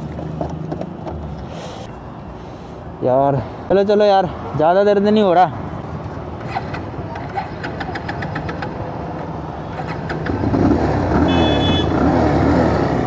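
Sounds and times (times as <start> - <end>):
motorcycle engine idling and revving: 6.5 - 13.0.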